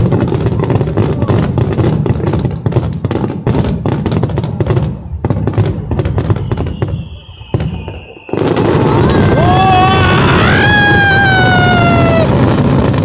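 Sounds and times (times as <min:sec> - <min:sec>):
fireworks bangs: 0:00.0 - 0:13.0
high descending whistle: 0:06.2 - 0:12.3.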